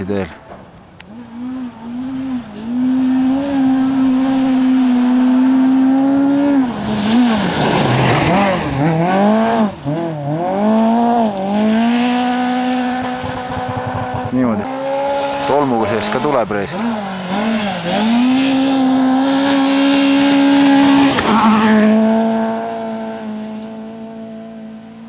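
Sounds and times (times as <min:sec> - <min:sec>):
rally car engine revving: 0:00.4 - 0:25.0
car passing by: 0:00.5 - 0:13.5.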